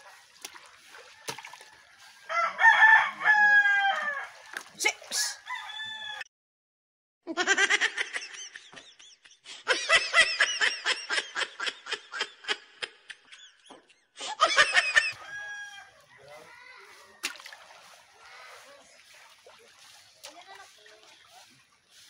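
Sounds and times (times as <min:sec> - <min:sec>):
rapid cackling laughter: 0:07.3 - 0:15.2.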